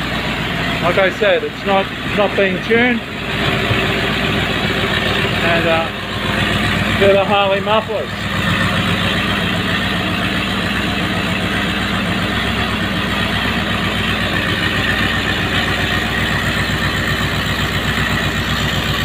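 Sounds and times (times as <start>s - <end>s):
engine idling roughly: 0.0s - 19.0s.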